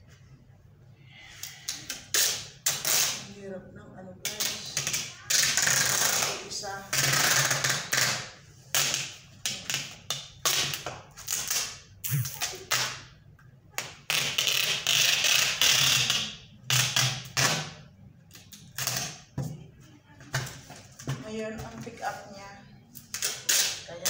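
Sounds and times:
packing tape ripping off roll: 0:01.8 - 0:03.3, 0:04.4 - 0:13.0, 0:13.8 - 0:17.8, 0:18.4 - 0:19.3, 0:23.0 - 0:23.9.

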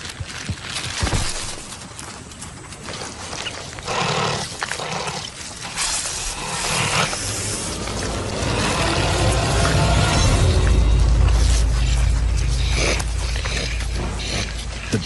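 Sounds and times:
animal growling: 0:03.8 - 0:15.0
low rumbling score: 0:06.1 - 0:15.0.

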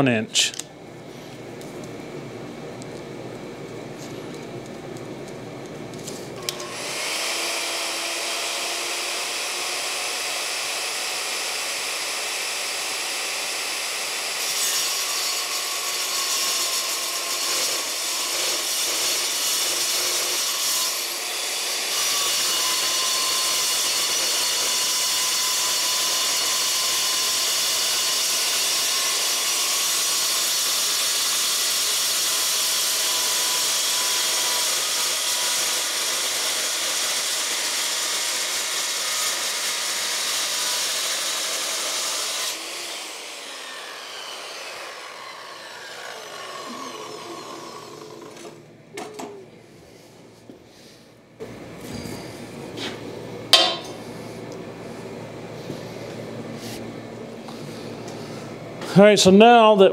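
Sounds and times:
saw motor winding down: 0:06.4 - 0:14.5, 0:18.6 - 0:48.6
circular saw cutting steel: 0:06.4 - 0:48.6.

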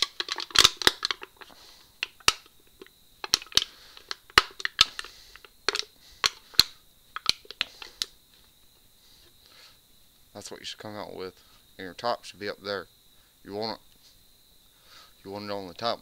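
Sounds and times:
aluminium can crackling: 0:00.0 - 0:08.1.

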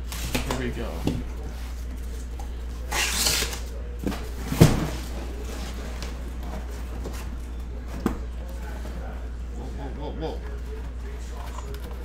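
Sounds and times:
tape ripping off cardboard: 0:02.9 - 0:03.7.

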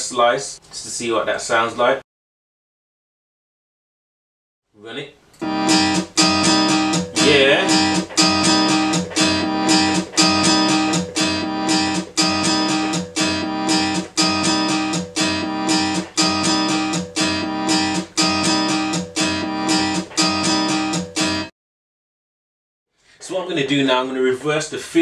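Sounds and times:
strummed guitar loop: 0:05.4 - 0:21.5.

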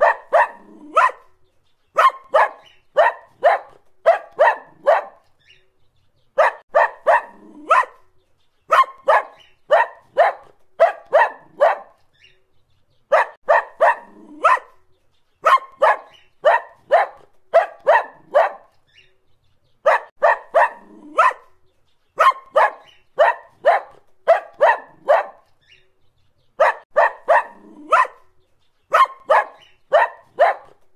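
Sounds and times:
dog barking: 0:00.0 - 0:01.4, 0:02.0 - 0:05.4, 0:06.4 - 0:08.1, 0:08.7 - 0:12.0, 0:13.1 - 0:14.8, 0:15.4 - 0:18.8, 0:19.8 - 0:21.6, 0:22.2 - 0:25.5, 0:26.6 - 0:30.8.

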